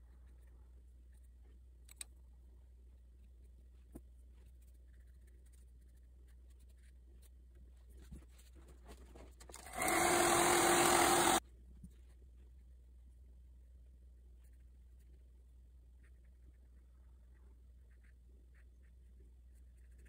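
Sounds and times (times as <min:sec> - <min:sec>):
hair dryer blowing: 0:09.7 - 0:11.4.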